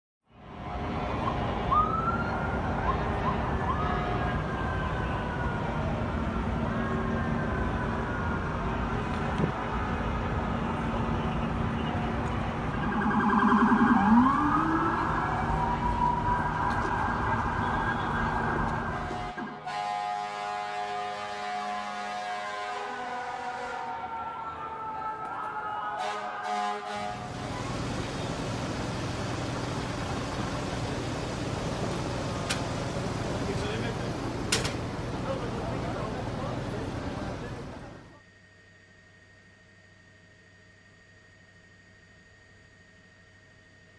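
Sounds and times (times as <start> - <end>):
city street traffic: 0.2 - 38.2
siren wailing: 1.1 - 19.5, 23.5 - 38.2
idling vehicles humming: 2.4 - 19.2, 27.2 - 38.2
fast warbling siren: 12.5 - 19.3
horn sounding: 19.0 - 24.1, 26.0 - 30.4.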